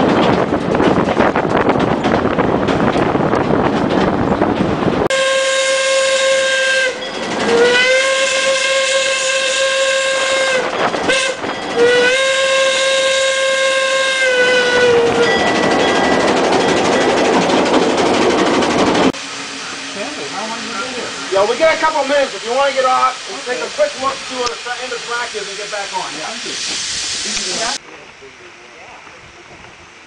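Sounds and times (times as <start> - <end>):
train rumbling: 0.0 - 30.0
steam whistle blasts: 5.1 - 15.3.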